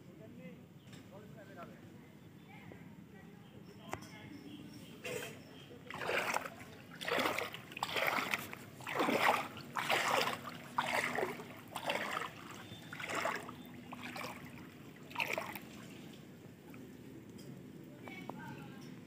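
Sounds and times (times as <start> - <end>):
wading steps splashing in water: 5.9 - 16.8.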